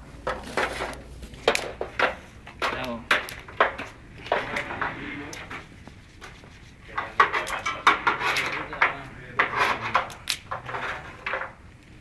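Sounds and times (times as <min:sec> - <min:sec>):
metal and wood clattering at a grill: 0:00.2 - 0:11.6
people talking: 0:02.6 - 0:03.1, 0:04.4 - 0:05.6, 0:06.8 - 0:10.2.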